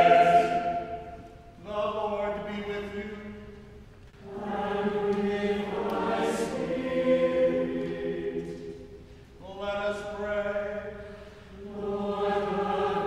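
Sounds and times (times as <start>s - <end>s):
choir singing: 0.0s - 2.2s, 4.2s - 9.0s, 11.5s - 13.0s.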